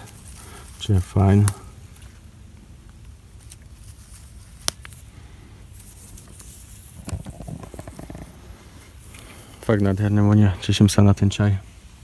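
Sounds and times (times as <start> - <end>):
leaves rustling and crackling: 0.0 - 12.0
low steady rumble: 0.0 - 12.0
plant stem snapping: 4.5 - 5.0.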